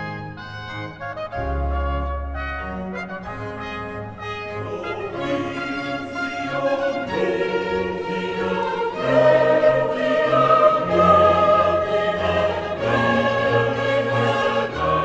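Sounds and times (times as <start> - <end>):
orchestral accompaniment: 0.0 - 15.0
choir singing: 4.4 - 15.0.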